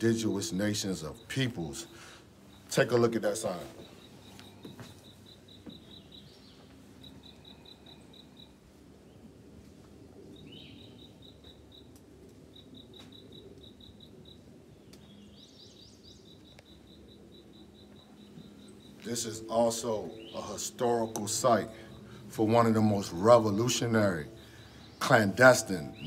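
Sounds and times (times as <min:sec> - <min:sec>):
bird calls: 0:00.0 - 0:26.0
high pulsing chirp: 0:00.0 - 0:26.0.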